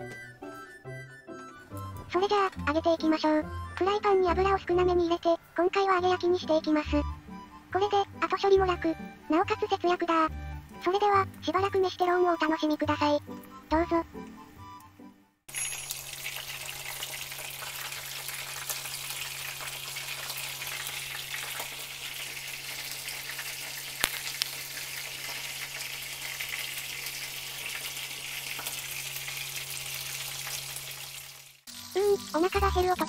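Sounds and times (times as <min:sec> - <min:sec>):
chicken sizzling in frying pan: 0:15.5 - 0:33.0.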